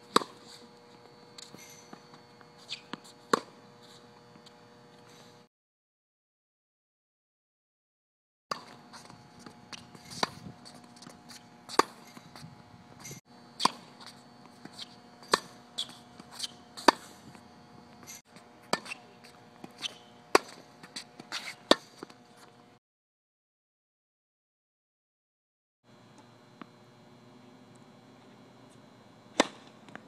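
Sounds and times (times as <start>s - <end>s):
tennis ball hit by rackets: 11.0s - 12.0s, 13.6s - 17.1s, 19.6s - 22.1s, 29.3s - 29.8s
faint steady hum: 25.9s - 30.0s.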